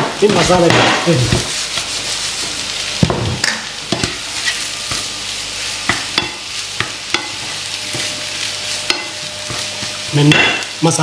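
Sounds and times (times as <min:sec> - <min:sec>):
food sizzling in oil: 0:00.0 - 0:11.0
wooden spatula scraping a pan: 0:00.2 - 0:03.4, 0:04.0 - 0:10.8.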